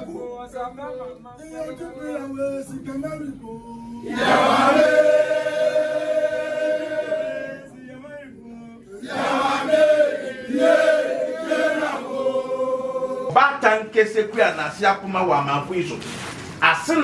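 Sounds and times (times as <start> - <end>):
men chanting in long notes: 0.0 - 13.4.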